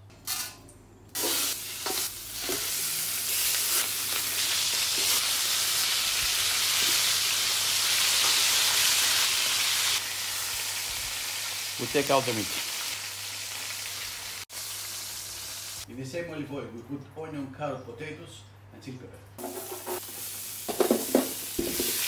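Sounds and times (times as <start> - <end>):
meat sizzling in oil: 1.2 - 15.8, 19.4 - 22.0.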